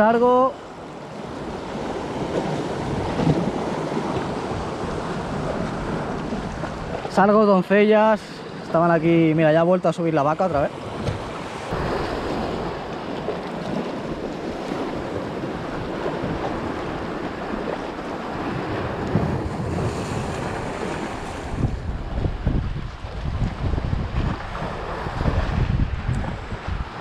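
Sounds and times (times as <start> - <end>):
sea water sloshing around rocks: 1.0 - 7.2, 10.7 - 25.7
wind buffeting microphone: 1.2 - 7.2, 10.7 - 27.0.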